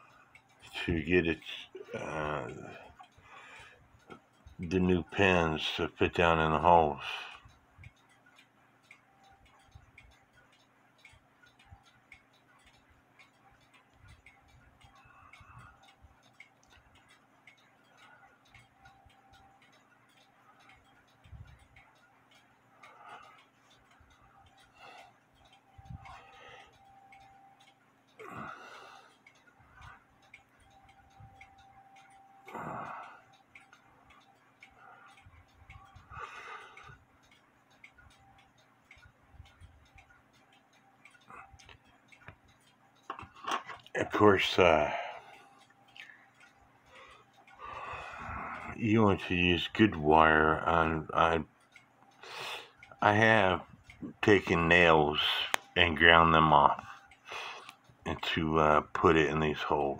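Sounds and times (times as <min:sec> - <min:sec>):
mechanical clock ticking: 0:00.0 - 0:59.9
breaths near microphone: 0:02.8 - 0:03.9, 0:46.9 - 0:48.8.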